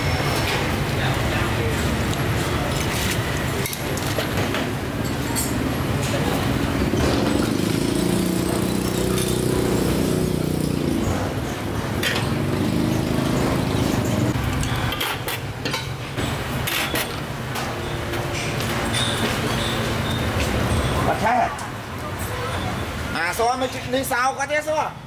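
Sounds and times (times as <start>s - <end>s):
passing road traffic: 4.3s - 23.3s.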